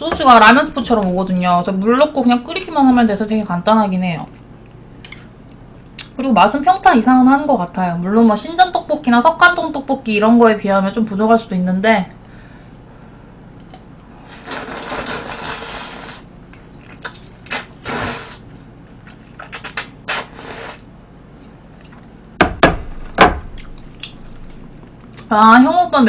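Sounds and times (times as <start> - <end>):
person slurping noodles: 14.3 - 16.3, 17.0 - 18.4, 19.6 - 20.9.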